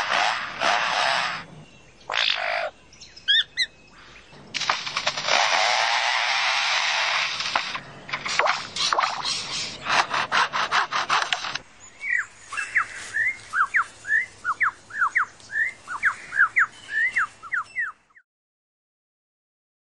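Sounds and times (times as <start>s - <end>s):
bird whistling falling notes: 12.0s - 18.0s.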